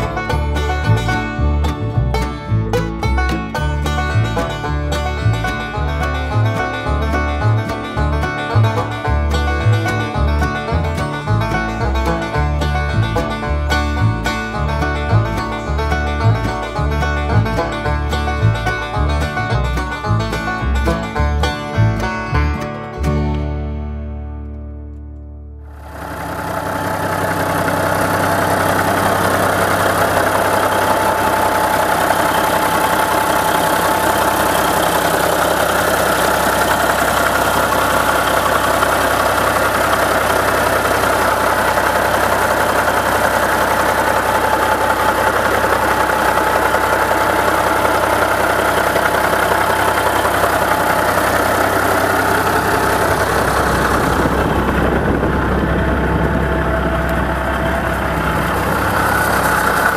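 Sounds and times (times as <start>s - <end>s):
diesel engine idling: 0.0s - 23.4s, 25.6s - 59.9s.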